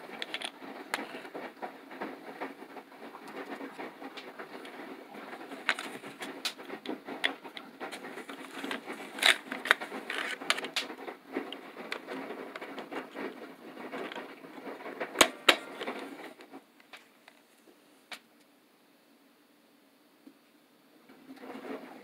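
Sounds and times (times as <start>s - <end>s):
plastic parts clicking and scraping: 0.0s - 17.5s.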